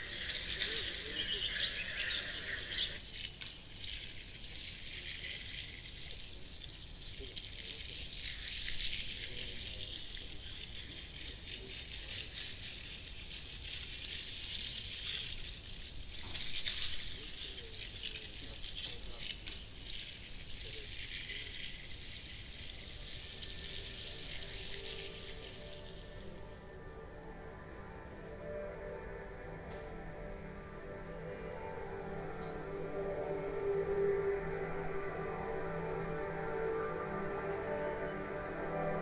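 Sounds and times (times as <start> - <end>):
high-pitched dry rattling and crackling: 0.0 - 27.0.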